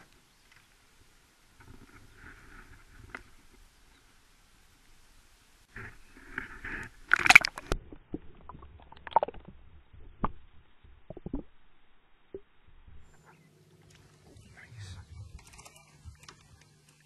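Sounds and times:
camera splashing into water: 7.1s - 7.8s.

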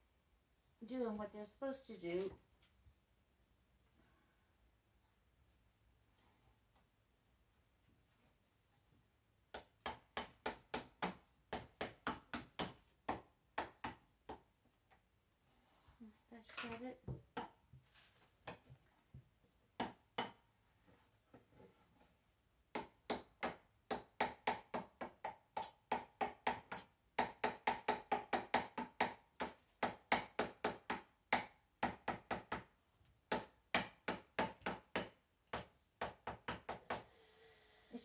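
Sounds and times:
small hammer tapping tacks: 22.7s - 32.7s.

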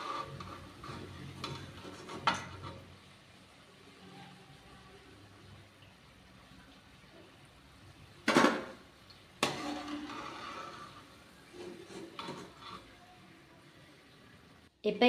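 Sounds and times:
metal skimmer clanking against pan: 9.4s - 10.2s.

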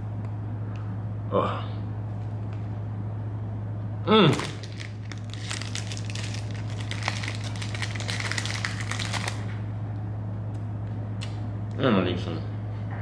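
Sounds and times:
chewing crunchy snack: 4.3s - 9.5s.

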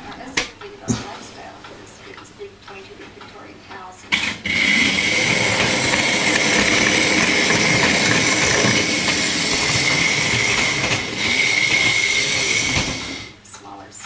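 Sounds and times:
train wheels rattling on track: 4.1s - 13.4s
high steady whine: 4.1s - 13.6s.

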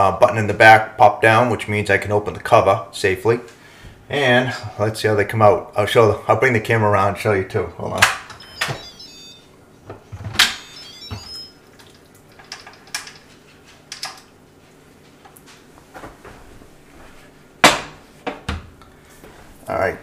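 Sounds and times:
high electronic beeps: 8.4s - 9.5s, 10.4s - 11.6s.

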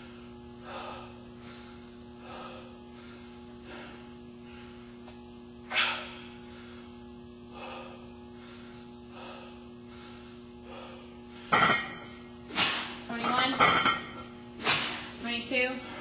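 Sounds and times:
man breathing hard: 0.0s - 5.1s, 5.7s - 13.0s
low hum: 0.0s - 16.0s.

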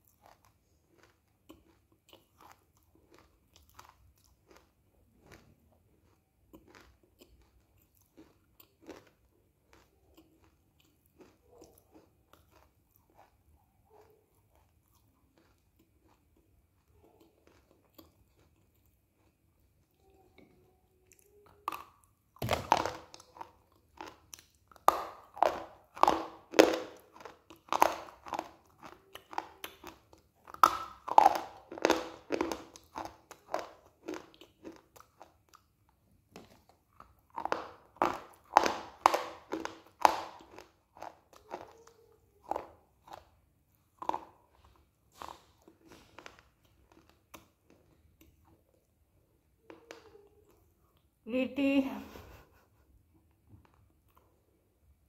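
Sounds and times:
chewing clicks: 0.0s - 19.4s
crunching bites: 0.2s - 13.3s, 21.7s - 35.6s.

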